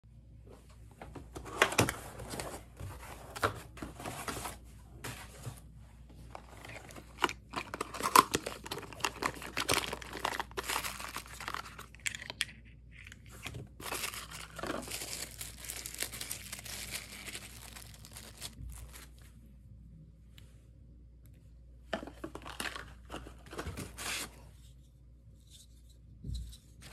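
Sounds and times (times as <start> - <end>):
packaging rustling and crinkling: 6.3 - 19.3
plastic bag crinkling: 6.4 - 19.3.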